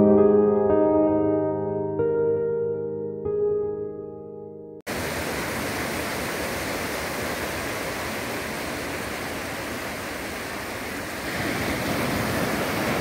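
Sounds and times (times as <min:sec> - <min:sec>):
piano music: 0:00.0 - 0:04.9
sea surf breaking: 0:04.9 - 0:13.0.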